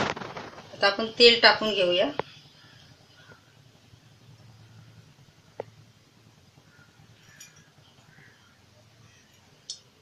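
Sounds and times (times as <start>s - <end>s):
faint low hum: 0.0s - 10.0s
light metal clink: 7.1s - 8.3s.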